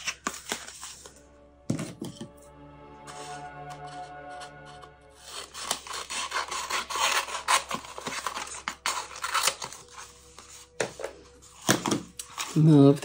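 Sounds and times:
tape rustling: 0:00.0 - 0:01.2, 0:03.8 - 0:13.0
scissors cutting tape: 0:05.6 - 0:09.8.

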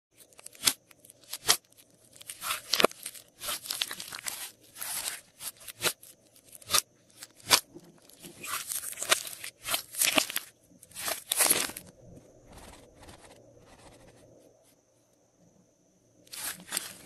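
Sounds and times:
slime crackling and squishing: 0:00.2 - 0:11.9, 0:16.3 - 0:17.0.

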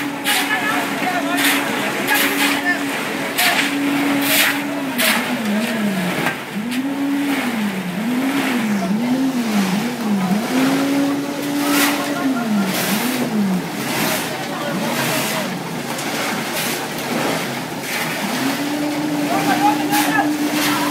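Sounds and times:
concrete mixer engine labouring: 0:00.0 - 0:20.9
shovels scraping wet concrete: 0:00.0 - 0:20.9.

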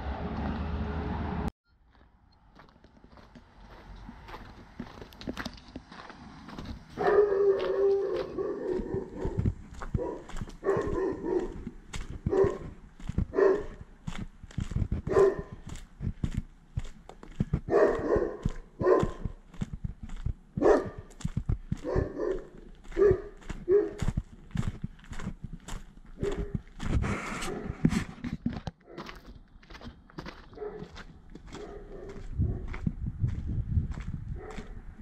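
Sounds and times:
dog barking: 0:07.0 - 0:13.9, 0:15.0 - 0:15.6, 0:17.7 - 0:19.4, 0:20.6 - 0:21.1, 0:21.7 - 0:24.2, 0:26.2 - 0:26.6, 0:27.4 - 0:27.8, 0:28.8 - 0:29.2, 0:30.4 - 0:32.7, 0:34.4 - 0:34.8
low thumps and rumble: 0:08.8 - 0:17.7, 0:18.4 - 0:22.2, 0:32.2 - 0:35.0.

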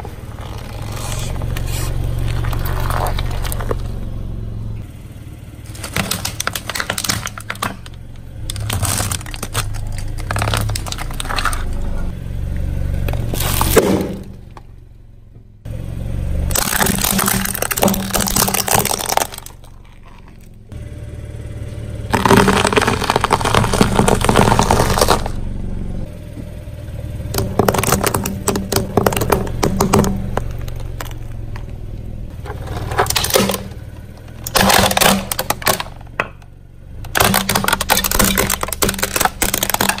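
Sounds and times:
tyre crushing objects: 0:00.0 - 0:04.0, 0:05.6 - 0:12.1, 0:13.0 - 0:14.6, 0:16.5 - 0:20.7, 0:22.1 - 0:25.4, 0:27.3 - 0:36.4, 0:37.1 - 0:40.0
low rumble: 0:00.0 - 0:37.2.

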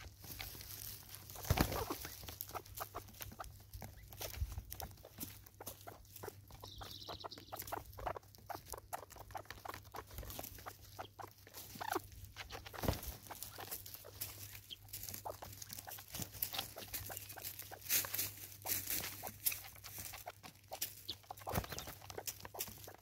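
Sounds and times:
beaks tapping on wood: 0:19.0 - 0:23.0.

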